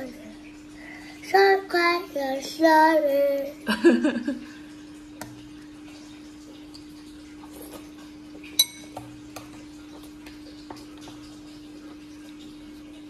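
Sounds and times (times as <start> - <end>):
tableware clinking: 8.5 - 9.1.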